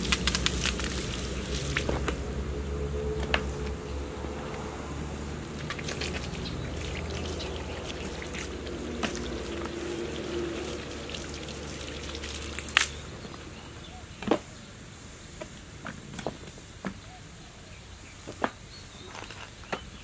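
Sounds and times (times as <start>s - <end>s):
hose water splashing on boots: 0.0s - 2.5s, 4.4s - 13.5s.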